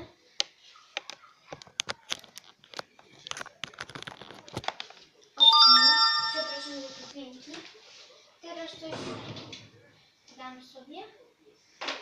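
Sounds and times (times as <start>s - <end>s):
hands clicking and crinkling: 0.4s - 5.1s
bell-like chime: 5.4s - 7.1s.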